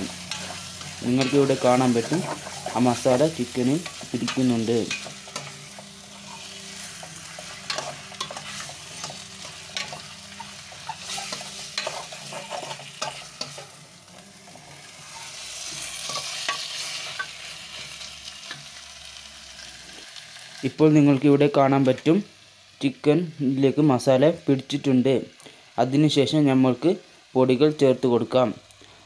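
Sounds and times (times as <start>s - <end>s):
food sizzling: 0.0s - 29.0s
metal spoon scraping pot: 3.8s - 13.7s.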